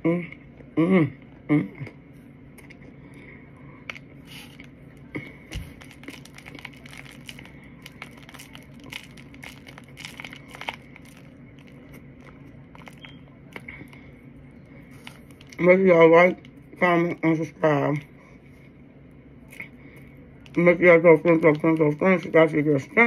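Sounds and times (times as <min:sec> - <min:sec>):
crunchy chewing: 0:03.8 - 0:15.6.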